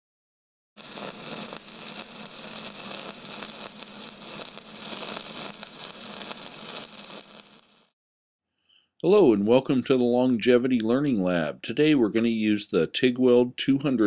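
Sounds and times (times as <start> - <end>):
crackling hiss: 0.8 - 8.0.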